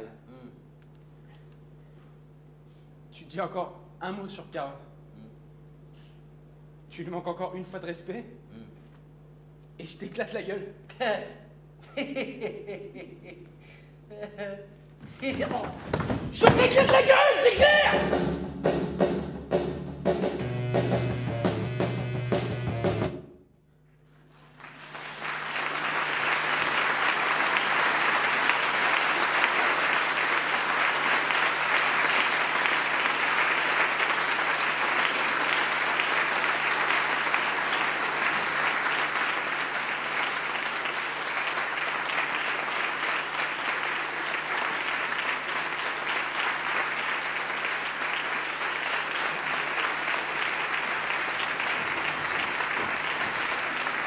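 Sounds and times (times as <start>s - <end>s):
audience applauding: 15.5s - 18.1s, 24.3s - 54.0s.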